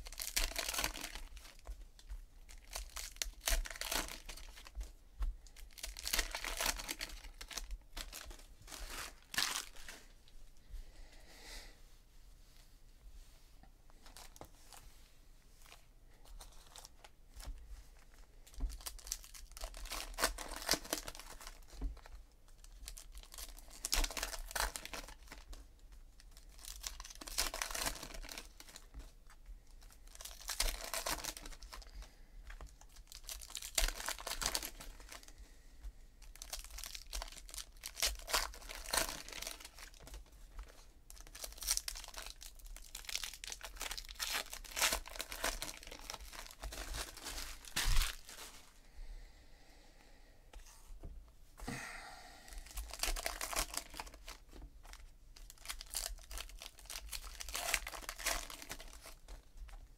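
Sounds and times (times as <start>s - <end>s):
card pack wrappers tearing: 0.0s - 1.6s, 2.5s - 4.7s, 5.6s - 10.0s, 18.7s - 21.7s, 22.8s - 25.5s, 26.4s - 28.8s, 30.0s - 32.0s, 32.8s - 35.3s, 36.2s - 40.2s, 41.1s - 48.5s, 52.6s - 59.3s.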